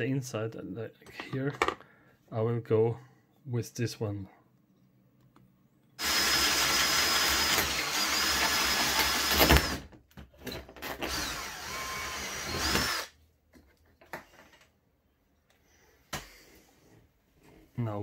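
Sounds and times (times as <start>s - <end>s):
cordless drill motor whine: 6.0s - 9.8s, 11.0s - 13.1s
hole saw cutting plastic: 6.0s - 9.9s, 10.8s - 13.1s.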